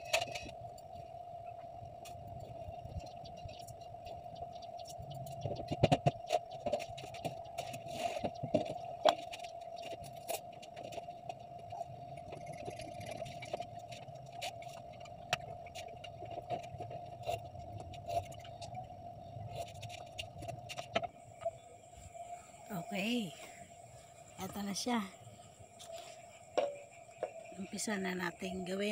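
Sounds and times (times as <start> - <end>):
steady hum: 0.0 - 28.9.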